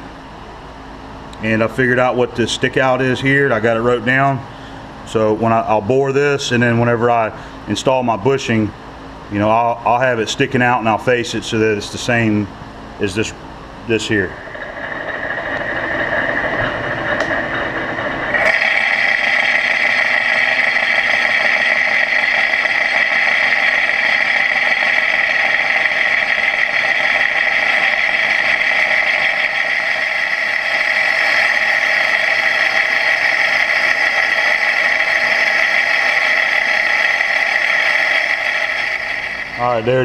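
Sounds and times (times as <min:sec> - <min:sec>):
lathe running: 0:13.2 - 0:40.0
steady high-pitched tone: 0:13.9 - 0:40.0
boring bar cutting metal: 0:14.1 - 0:40.0.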